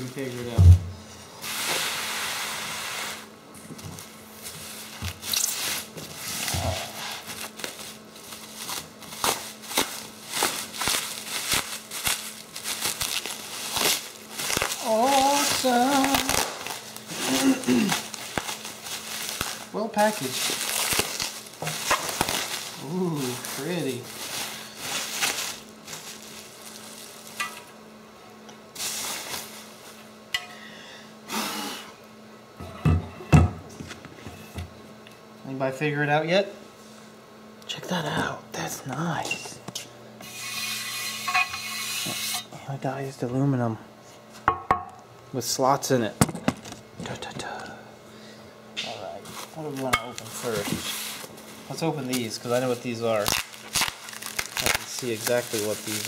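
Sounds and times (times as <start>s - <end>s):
plastic packaging crinkling: 4.6s - 27.7s, 49.0s - 56.0s.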